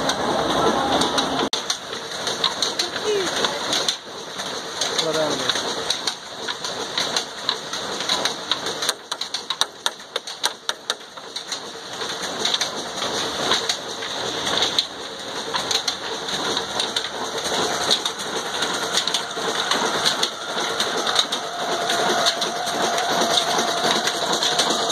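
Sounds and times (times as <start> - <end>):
belts and pulleys turning: 0.0 - 24.9
stone flour mill grinding: 1.6 - 24.9
steady whine: 13.0 - 24.9.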